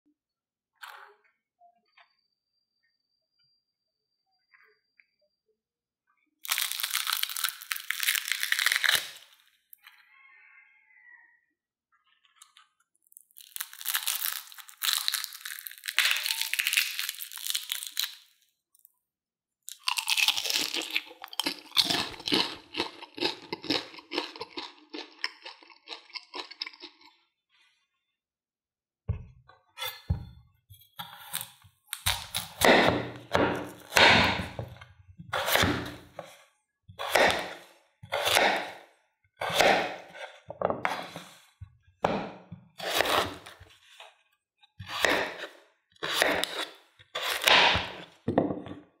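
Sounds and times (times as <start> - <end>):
crispy snacks crackling: 6.4 - 9.5, 12.4 - 18.9, 19.6 - 27.2
knife cutting potatoes on board: 31.0 - 36.4, 37.0 - 38.8, 39.4 - 41.4, 42.0 - 43.6, 44.8 - 48.1.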